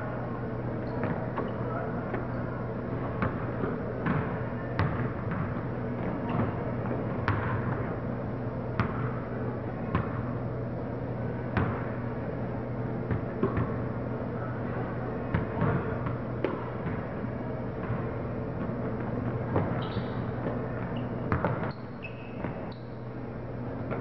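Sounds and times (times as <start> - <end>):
steady low hum: 0.0 - 24.0
basketball bouncing on wood floor: 4.0 - 6.6, 21.3 - 21.7.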